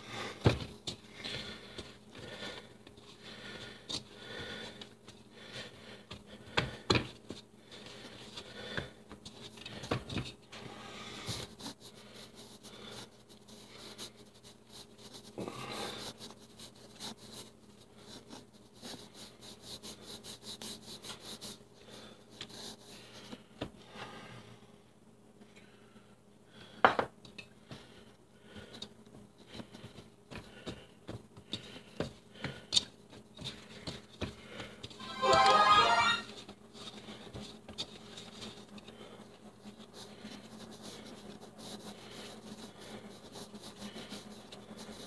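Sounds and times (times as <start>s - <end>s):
hands kneading dough: 0.1s - 23.8s, 27.6s - 35.0s, 36.7s - 45.0s.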